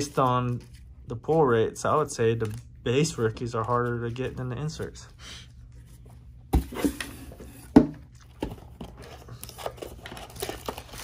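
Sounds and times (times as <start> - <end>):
packaging rustling and crinkling: 8.2 - 11.0.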